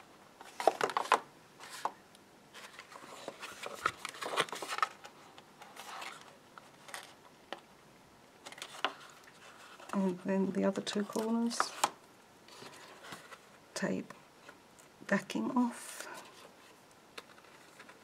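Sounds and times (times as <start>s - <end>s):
card stock rustling and tapping: 0.4s - 2.0s.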